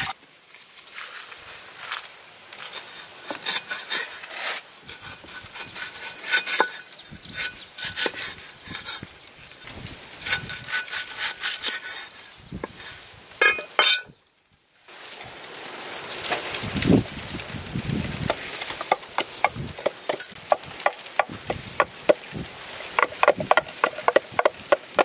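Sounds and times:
cleaver chopping on wooden block: 18.8s - 22.2s, 23.0s - 25.0s.

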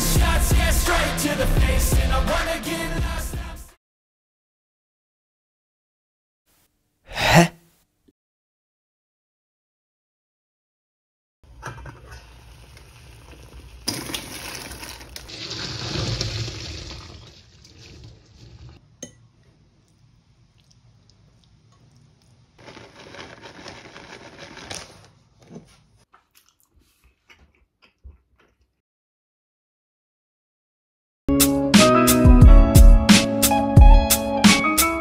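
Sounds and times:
water boiling and bubbling: 11.9s - 18.8s.

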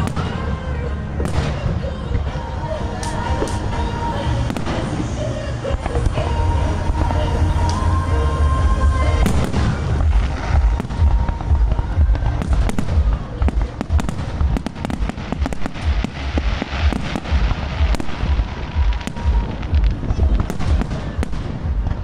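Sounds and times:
fireworks booming and cracking: 0.0s - 22.0s.

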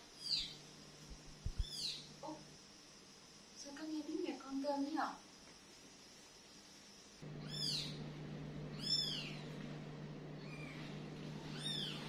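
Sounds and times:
steady low hum: 0.0s - 3.7s, 5.6s - 12.0s
kitten mewing: 10.4s - 12.0s.

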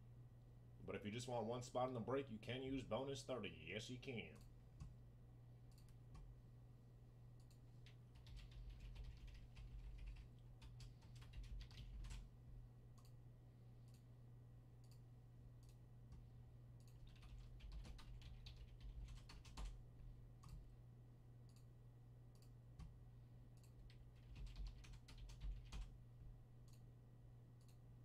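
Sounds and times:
low steady hum: 0.0s - 28.0s
typing on computer keyboard: 7.4s - 12.3s, 16.8s - 19.8s, 23.6s - 25.9s.

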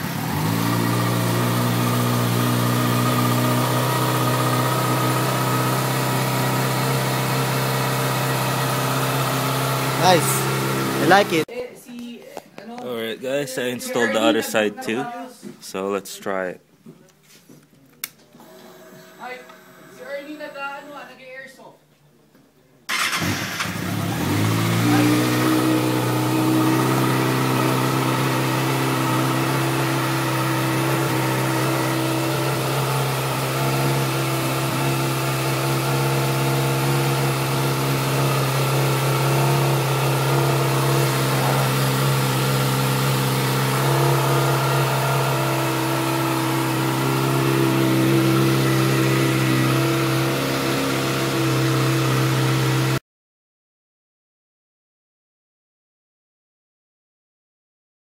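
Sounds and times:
motorcycle engine starting and idling: 0.0s - 11.4s, 18.4s - 21.0s, 22.9s - 53.0s.

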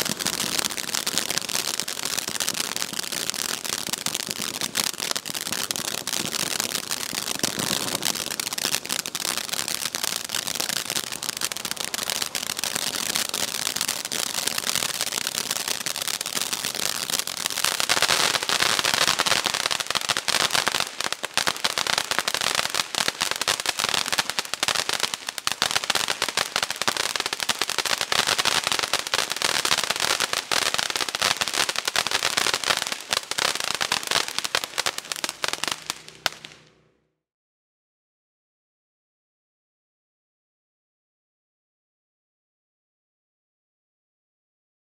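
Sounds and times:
fountain firework crackling: 0.0s - 36.8s.

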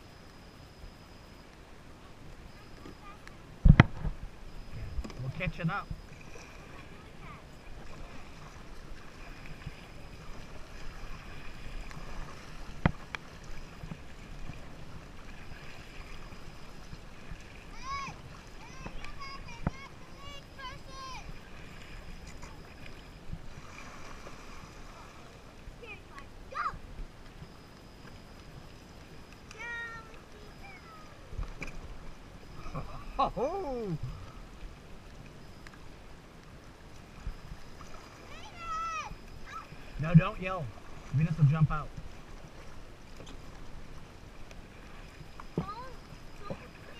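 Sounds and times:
paddle strokes in water: 2.0s - 33.2s, 33.8s - 46.9s
wind rumble on microphone: 3.5s - 6.4s.

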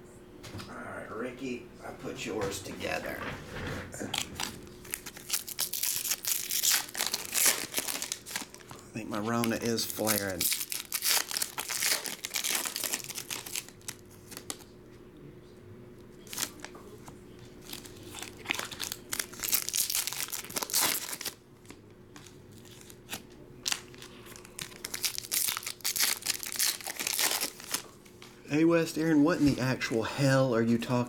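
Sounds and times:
foil wrapper tearing and crinkling: 4.1s - 14.6s, 16.2s - 16.7s, 17.6s - 21.4s, 22.2s - 27.9s.

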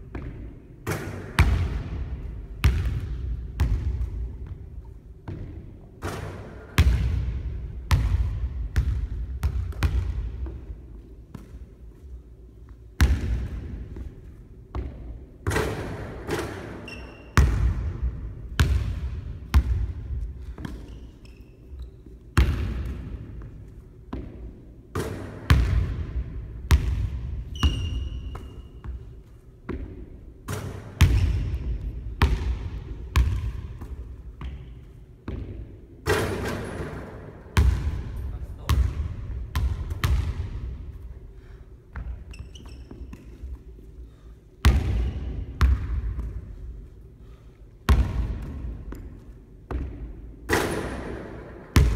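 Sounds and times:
basketball bouncing on hardwood floor: 0.0s - 10.7s, 13.0s - 21.0s, 21.8s - 40.8s, 44.6s - 46.6s, 47.9s - 51.0s
short high squeaks: 16.8s - 17.4s, 42.3s - 43.1s.

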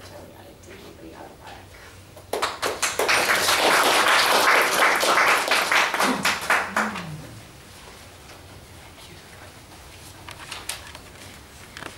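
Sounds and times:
audience applauding: 2.3s - 7.5s.

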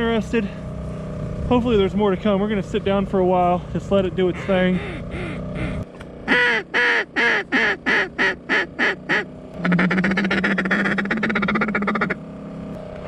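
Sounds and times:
low hum: 0.0s - 13.0s
duck quacks: 4.4s - 12.2s.

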